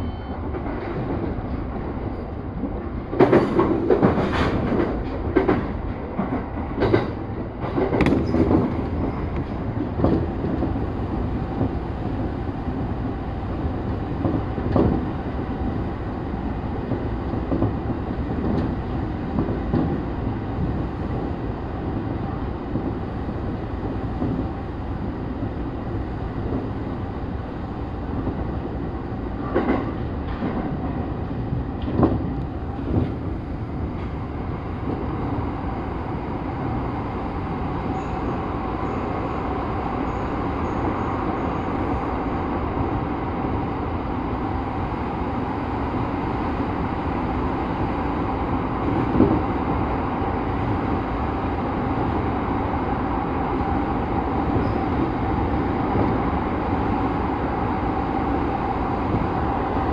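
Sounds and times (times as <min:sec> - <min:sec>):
train rumble: 0:00.0 - 0:59.9.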